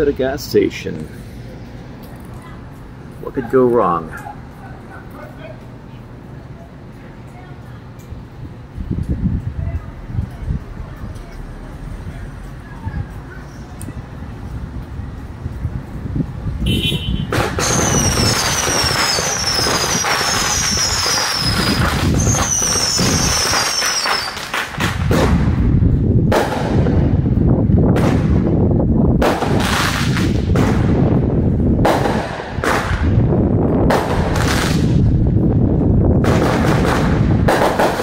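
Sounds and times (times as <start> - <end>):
loud firework bangs: 16.7 - 27.2, 27.9 - 28.6, 29.2 - 31.2, 31.8 - 35.2, 36.2 - 38.0
fireworks crackling: 17.1 - 27.2, 29.2 - 31.1, 31.8 - 33.2, 33.9 - 35.3, 36.2 - 38.0
falling firework whistles: 17.4 - 24.7.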